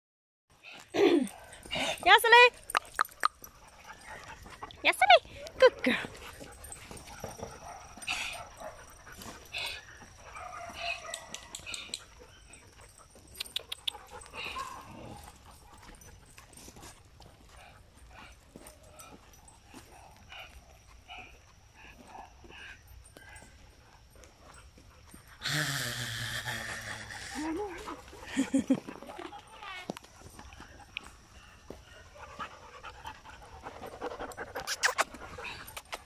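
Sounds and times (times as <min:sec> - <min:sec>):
paws clicking on asphalt: 0:00.6 - 0:36.0
dogs whining and yipping: 0:00.7 - 0:25.4, 0:26.6 - 0:36.0.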